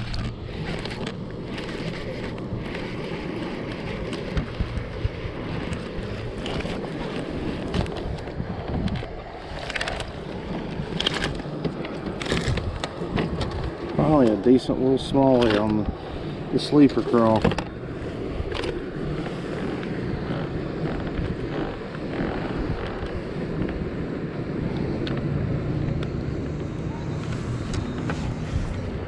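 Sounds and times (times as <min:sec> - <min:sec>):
fishing gear clicks and knocks: 0:00.0 - 0:14.4, 0:15.0 - 0:16.0, 0:16.7 - 0:23.8
wind buffeting microphone: 0:00.0 - 0:29.0.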